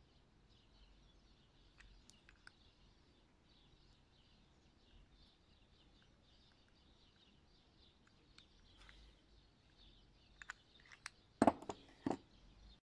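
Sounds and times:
faint bird chirps: 0.0 - 12.8
metal parts clicking and knocking: 10.4 - 12.2.

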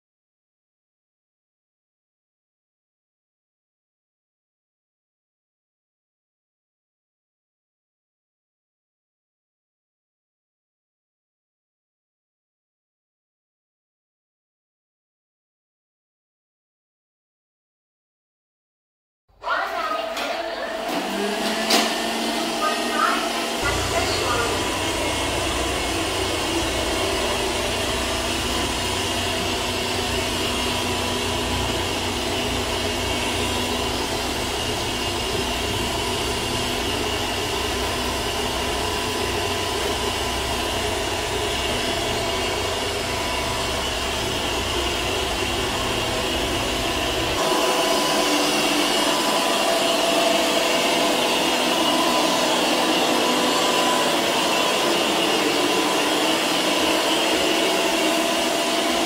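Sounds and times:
robot vacuum cleaner whirring: 19.4 - 59.0.

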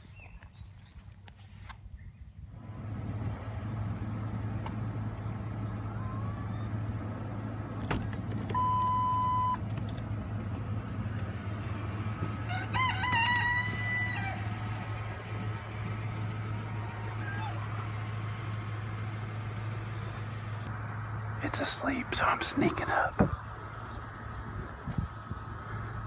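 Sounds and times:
low hum: 2.3 - 26.0
electronic beep: 8.6 - 9.6
rooster crowing: 12.2 - 14.9.

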